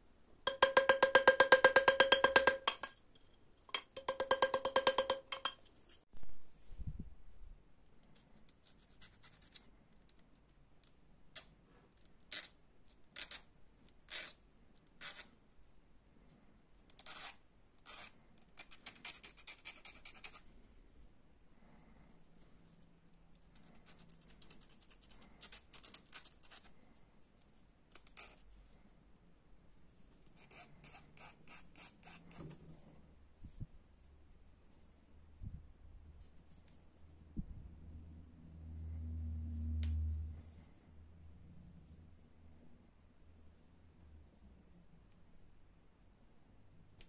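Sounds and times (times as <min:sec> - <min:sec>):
hand file rasping on wire: 0:30.3 - 0:32.4.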